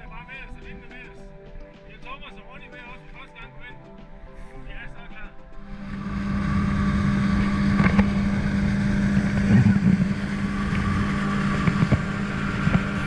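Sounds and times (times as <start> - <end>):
outboard motor running: 5.6 - 13.0.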